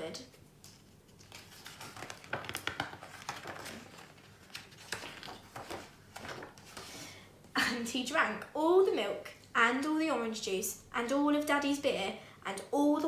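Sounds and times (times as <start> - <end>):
book pages turning: 0.3 - 7.0.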